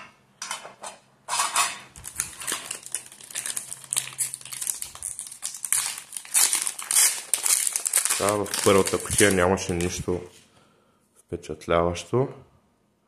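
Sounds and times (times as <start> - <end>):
wrapper crinkling and tearing: 2.0 - 10.2.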